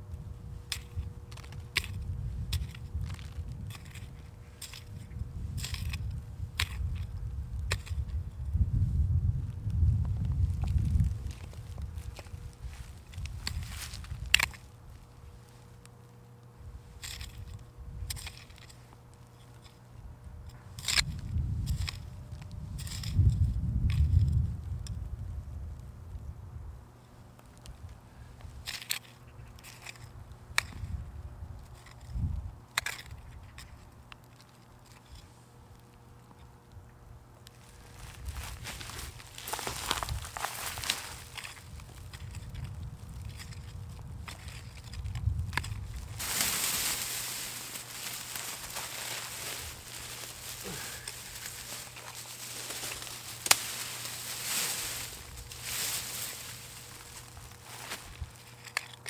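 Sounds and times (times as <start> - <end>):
hand hoe scraping dry soil: 10.5 - 14.6, 37.6 - 42.6, 43.3 - 59.0.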